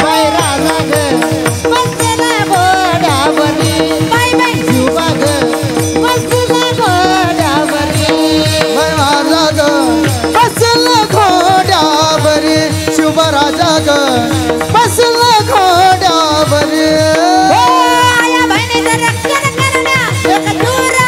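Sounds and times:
drumming: 0:00.0 - 0:21.0
men singing devotional songs: 0:00.0 - 0:21.0.

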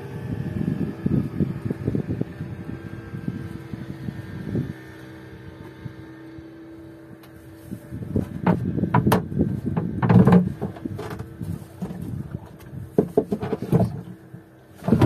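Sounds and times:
gear knocking on wooden boat floor: 0:08.3 - 0:12.0.

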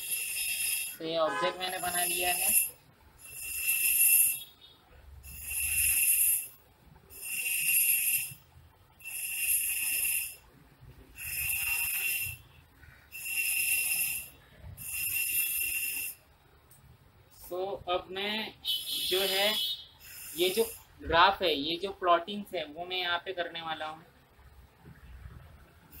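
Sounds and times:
rhythmic rasping hiss: 0:00.0 - 0:04.6, 0:05.2 - 0:10.5, 0:11.1 - 0:16.3, 0:19.2 - 0:21.6.

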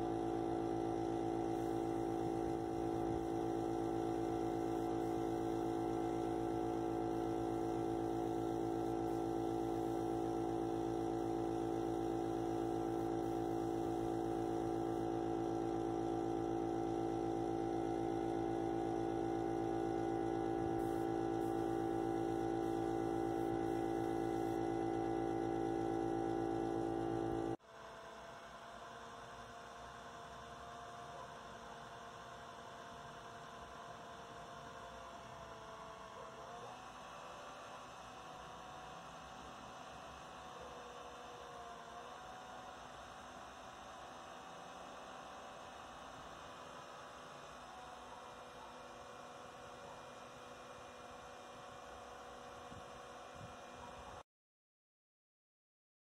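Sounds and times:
air compressor motor humming: 0:00.0 - 0:27.6.

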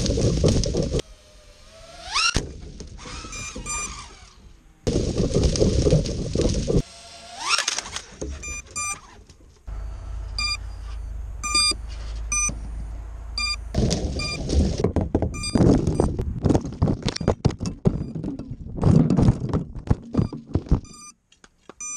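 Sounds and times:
rustling and crackling branches: 0:00.0 - 0:21.8
drone motors whining: 0:00.4 - 0:16.2
steady low hum: 0:09.7 - 0:16.4
short high electronic beeps: 0:10.4 - 0:12.6.

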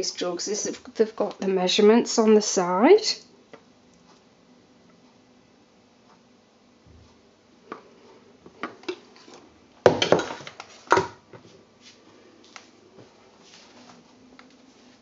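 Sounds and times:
utensils knocking on worktop: 0:09.9 - 0:11.1.

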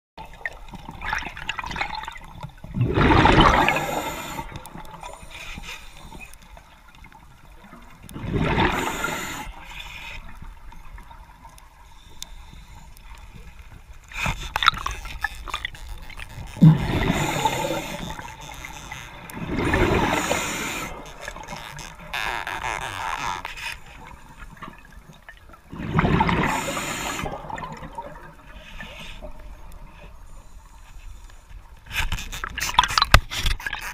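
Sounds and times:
gurgling exhaled bubbles: 0:00.4 - 0:05.3, 0:07.6 - 0:09.6, 0:15.9 - 0:23.4, 0:24.0 - 0:29.5
watery hiss: 0:02.9 - 0:06.3, 0:08.2 - 0:10.3, 0:16.6 - 0:21.5, 0:25.7 - 0:27.8.

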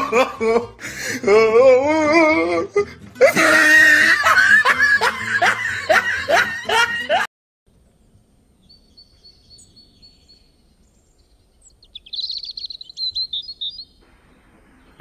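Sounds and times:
loud laughter: 0:00.0 - 0:07.3.

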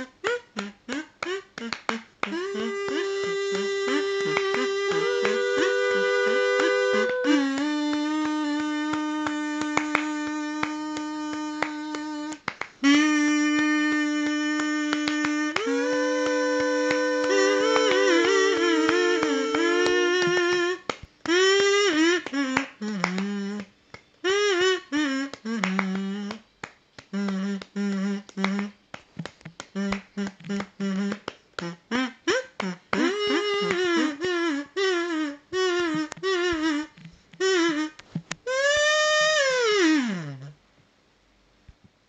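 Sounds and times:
kazoo playing melody: 0:00.0 - 0:28.8, 0:29.5 - 0:40.6.

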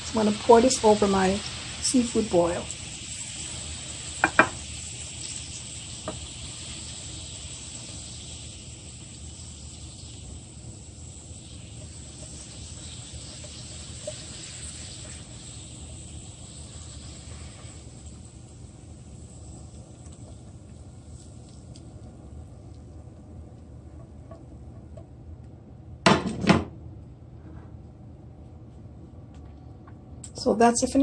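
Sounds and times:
faint steady hiss: 0:00.0 - 0:26.0
sauce pouring: 0:02.7 - 0:23.1.

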